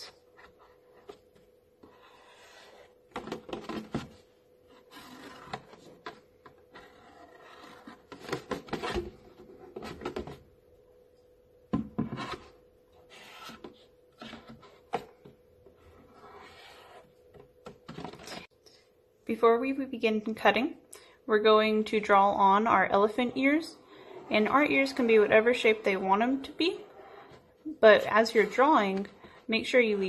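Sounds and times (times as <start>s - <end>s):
marker scratching on plastic: 1.8s - 3.0s, 6.7s - 8.1s, 13.0s - 13.8s, 16.0s - 17.1s.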